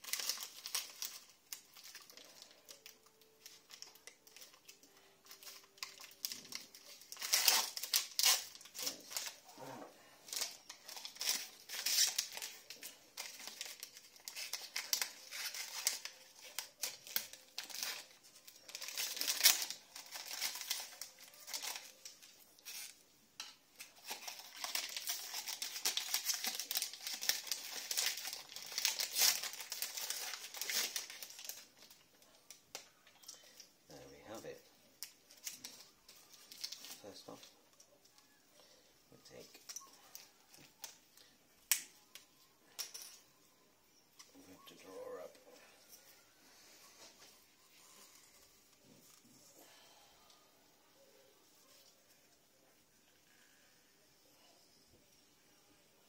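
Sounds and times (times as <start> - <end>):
plastic packaging crinkling: 0.0 - 23.0, 23.7 - 43.2.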